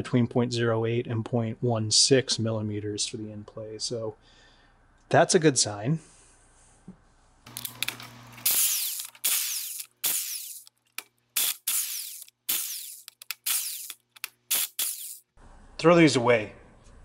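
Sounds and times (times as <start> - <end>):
electric impact wrench bursts: 7.5 - 10.7, 11.4 - 15.3.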